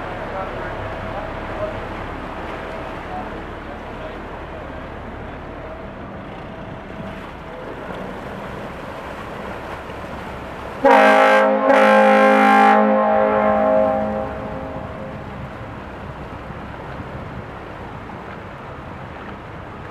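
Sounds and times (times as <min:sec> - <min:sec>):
low steady rumble: 0:00.0 - 0:19.9
tugboat horn blasts: 0:10.8 - 0:15.4.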